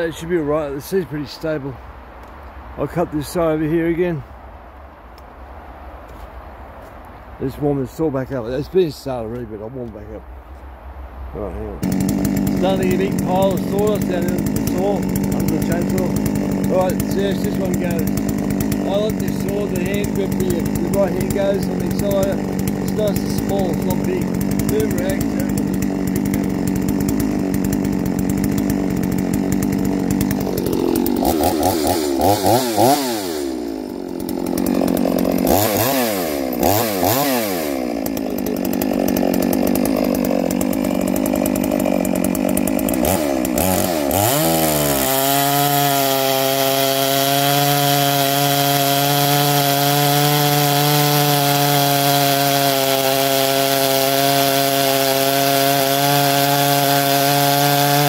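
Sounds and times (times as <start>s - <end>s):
chainsaw idling and revving: 0.0s - 1.8s, 11.4s - 58.0s
chainsaw cutting into log: 11.8s - 58.0s.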